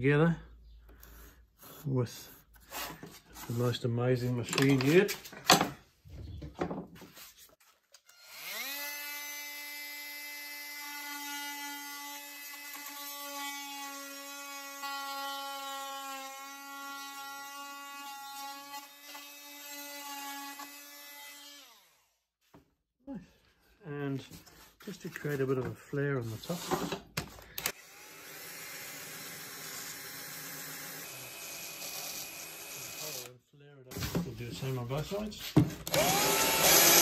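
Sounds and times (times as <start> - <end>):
electric jigsaw cutting wood: 8.1 - 22.1, 27.6 - 33.3, 35.8 - 37.0.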